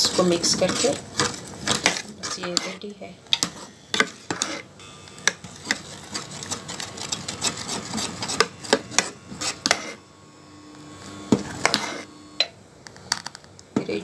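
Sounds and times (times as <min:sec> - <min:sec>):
metal spoon scraping a pan: 0:00.0 - 0:04.7, 0:05.4 - 0:10.0, 0:11.5 - 0:12.1.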